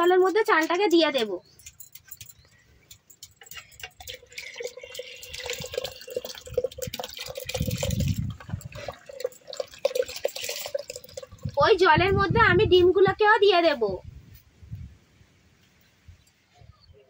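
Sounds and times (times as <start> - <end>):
water splashing: 4.0 - 11.8
water bubbling on the boil: 4.0 - 11.9.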